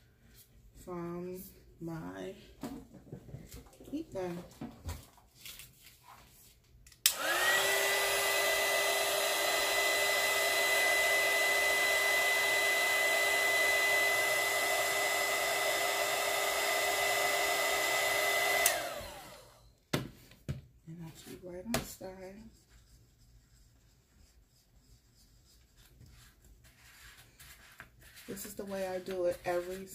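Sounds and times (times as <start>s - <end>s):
heat gun fan whine and airflow: 6.9s - 19.8s.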